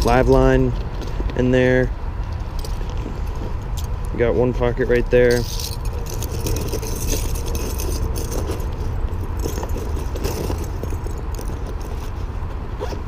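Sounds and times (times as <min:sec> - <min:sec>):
steady low rumble: 0:00.0 - 0:12.8
metal fishing rigs jingling: 0:05.0 - 0:12.2.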